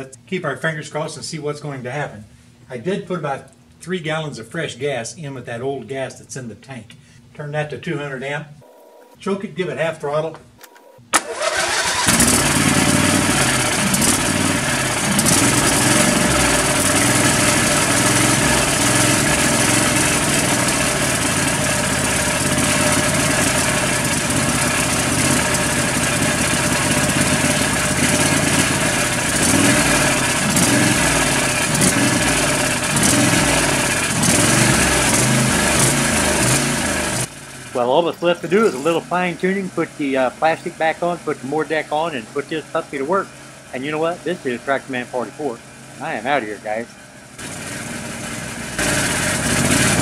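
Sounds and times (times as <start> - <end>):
lawn tractor engine running: 10.7 - 50.0.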